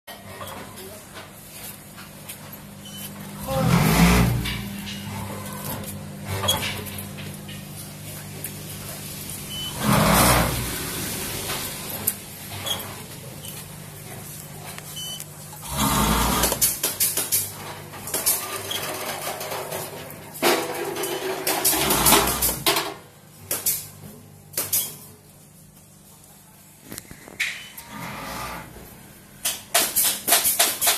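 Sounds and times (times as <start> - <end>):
steady motor hum: 2.4 - 17.0.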